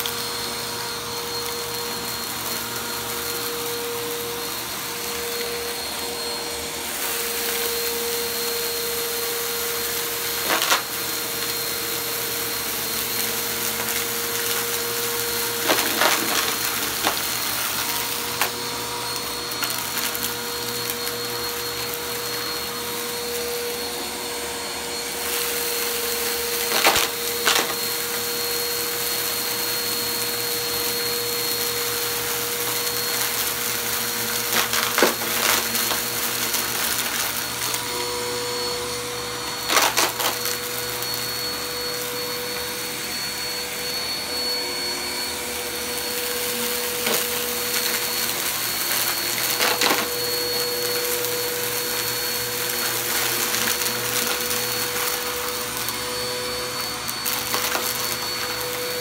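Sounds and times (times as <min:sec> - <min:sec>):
vacuum cleaner running: 0:00.0 - 0:59.0
debris clattering in vacuum: 0:13.1 - 0:23.7, 0:25.1 - 0:28.6, 0:38.9 - 0:42.9, 0:46.4 - 0:59.0.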